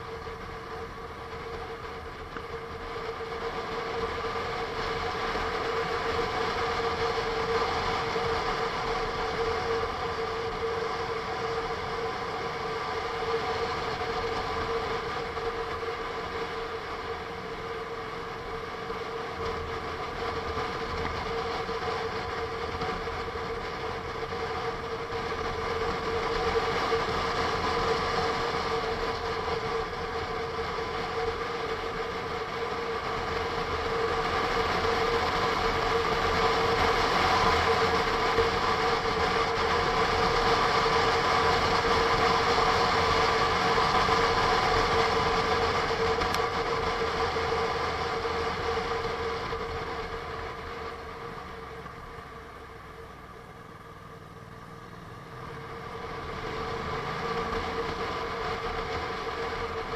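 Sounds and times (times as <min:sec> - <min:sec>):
motorcycle engine cruising: 0:33.0 - 0:59.9.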